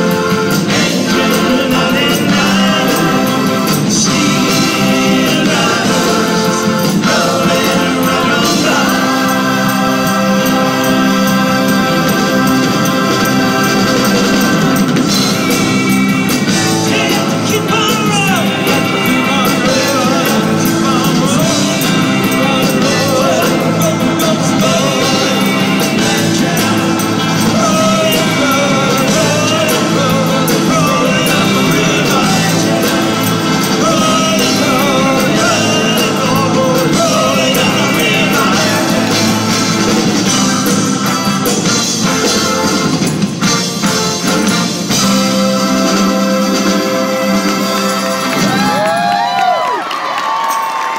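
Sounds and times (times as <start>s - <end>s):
man singing lead vocal: 0.0s - 41.6s
electric guitar: 0.0s - 50.9s
keyboards: 0.0s - 50.9s.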